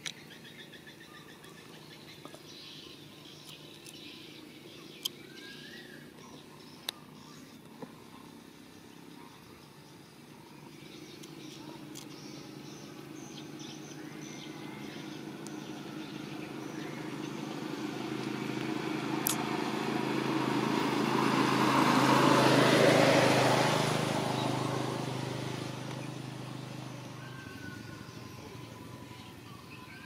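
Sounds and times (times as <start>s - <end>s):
small motorcycle engine passing: 0.0s - 30.0s.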